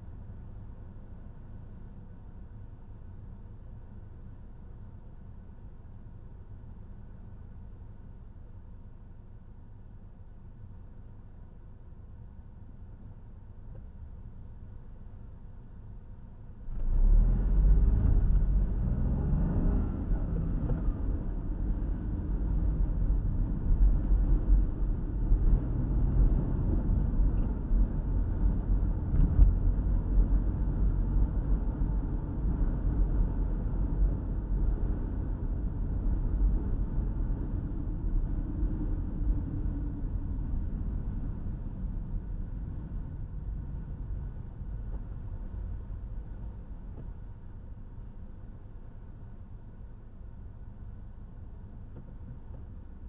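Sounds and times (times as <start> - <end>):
car engine rumbling: 11.9 - 53.0
tyres on road: 16.6 - 53.0.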